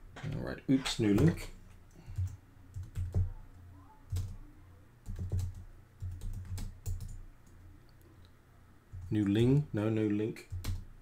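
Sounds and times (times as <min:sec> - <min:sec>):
low steady hum: 0:00.0 - 0:11.0
typing on keyboard: 0:02.1 - 0:03.4, 0:04.1 - 0:04.4, 0:05.0 - 0:07.2, 0:10.4 - 0:10.8.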